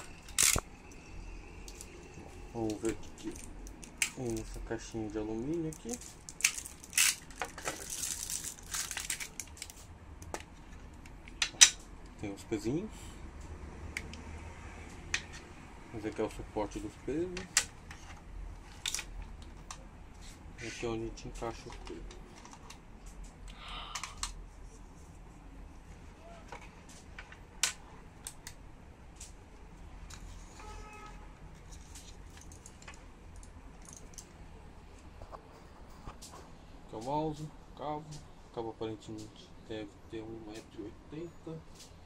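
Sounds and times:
plastic wrapping crinkling and tearing: 0:00.0 - 0:00.6, 0:02.6 - 0:09.9.

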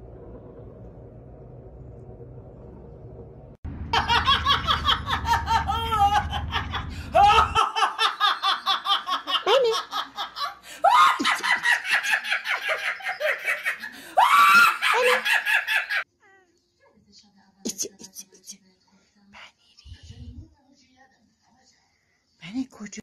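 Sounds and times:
woman laughing loudly: 0:04.0 - 0:16.0
woman squealing: 0:14.2 - 0:15.2.

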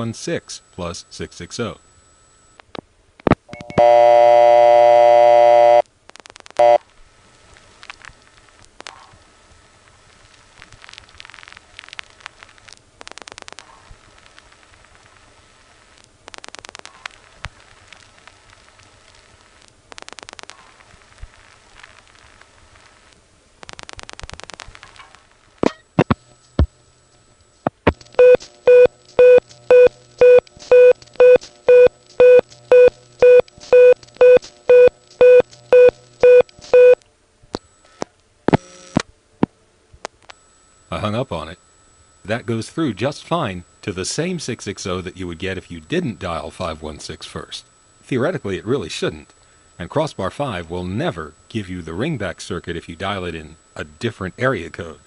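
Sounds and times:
telephone hang-up clicks: 0:03.5 - 0:03.9
pulsing telephone tone: 0:03.5 - 0:05.8, 0:06.6 - 0:06.8
telephone line hiss: 0:03.5 - 0:05.8, 0:06.6 - 0:06.8, 0:28.2 - 0:37.0, 0:37.6 - 0:39.0, 0:40.2 - 0:55.0.

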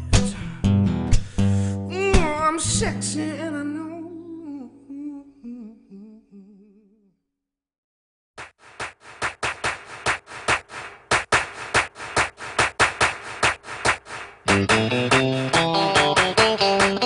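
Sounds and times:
music track with regular beat: 0:08.4 - 0:17.0.

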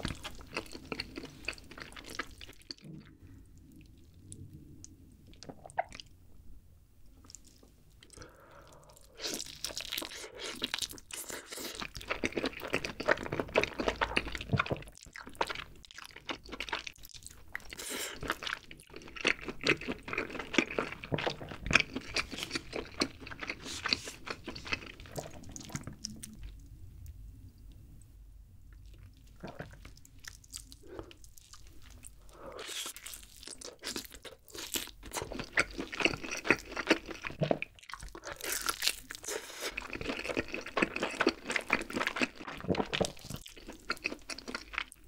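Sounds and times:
crackling chewing of chicken: 0:00.0 - 0:06.0, 0:07.2 - 0:27.7, 0:28.7 - 0:45.0.

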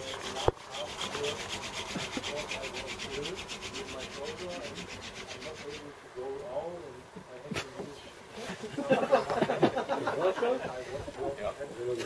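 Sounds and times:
hand drill rasping on wooden board: 0:00.0 - 0:05.9.

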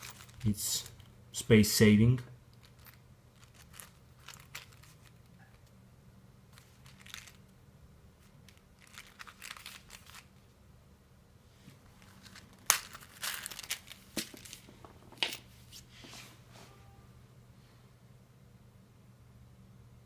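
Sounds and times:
wallet case rustling and scraping: 0:00.0 - 0:00.5, 0:11.8 - 0:15.0.

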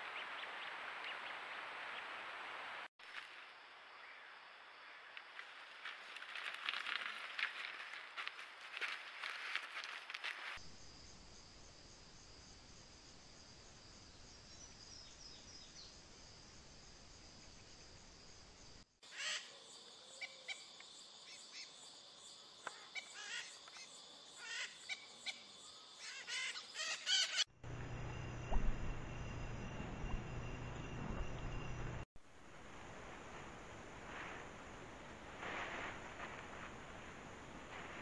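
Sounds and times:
crackling rustle: 0:05.1 - 0:10.6, 0:27.7 - 0:38.0
high insect drone: 0:27.5 - 0:32.1.

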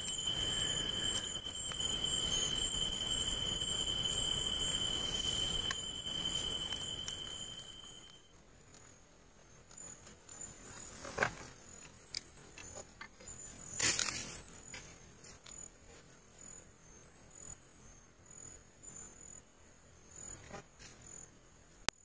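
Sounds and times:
crickets chirping: 0:00.0 - 0:22.0
rustling in dry leaf litter: 0:13.7 - 0:14.6.

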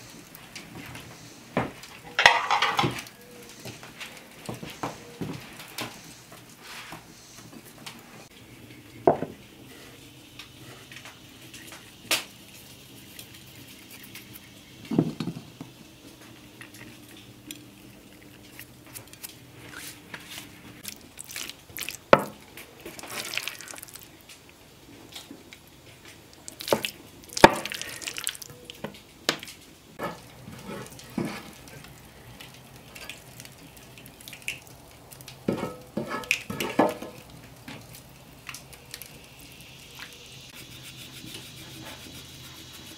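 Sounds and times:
cookware clinks and knocks: 0:02.1 - 0:03.0
wet stirring: 0:16.5 - 0:24.3, 0:26.3 - 0:28.9, 0:40.5 - 0:42.9
wooden spoon scraping skillet: 0:30.0 - 0:31.8, 0:35.5 - 0:37.2.

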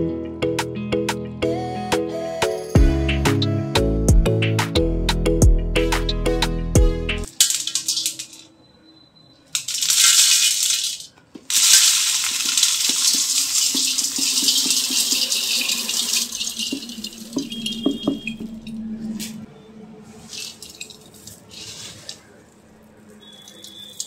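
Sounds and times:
puffed rice pattering on metal: 0:09.6 - 0:16.7.

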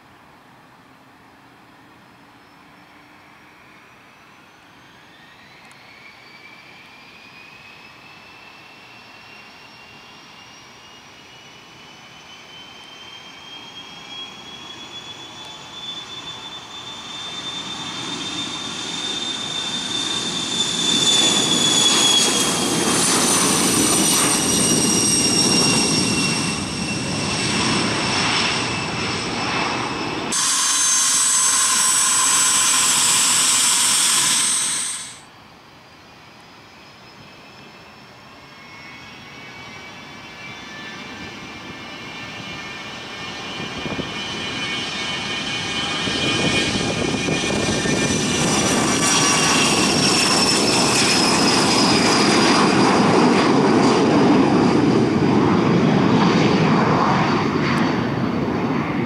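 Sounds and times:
jet engines whine: 0:00.0 - 0:59.0
steady jet engine sound: 0:11.5 - 0:35.4.

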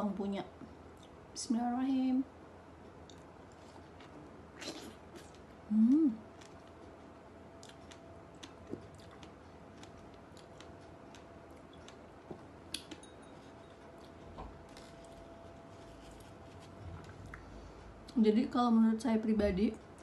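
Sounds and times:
person chewing strawberry: 0:02.9 - 0:18.2
person humming: 0:05.7 - 0:06.2.

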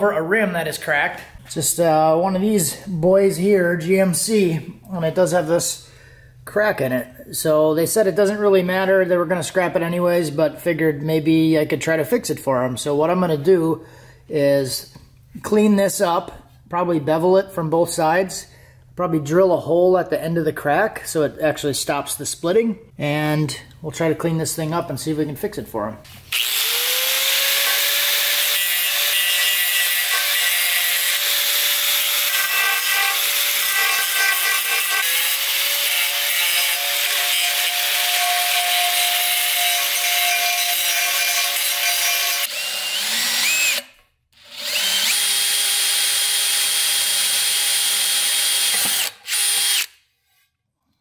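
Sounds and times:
electric drill running: 0:26.3 - 0:38.6, 0:39.5 - 0:50.0
sander grinding metal: 0:26.3 - 0:49.9.

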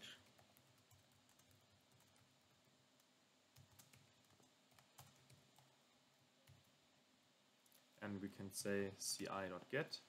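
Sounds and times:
faint keyboard typing: 0:00.0 - 0:06.8, 0:07.6 - 0:08.0.

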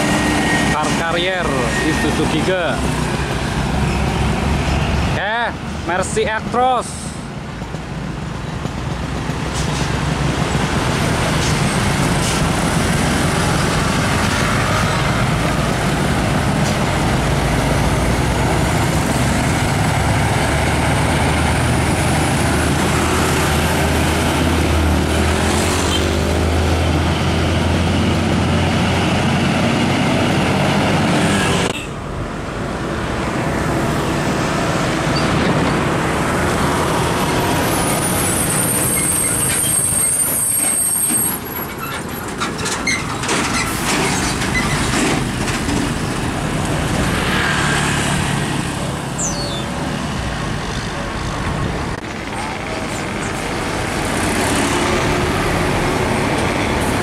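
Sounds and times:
diesel truck approaching: 0:00.0 - 0:57.0
road traffic noise: 0:00.0 - 0:57.0
diesel truck engine droning: 0:48.3 - 0:57.0.

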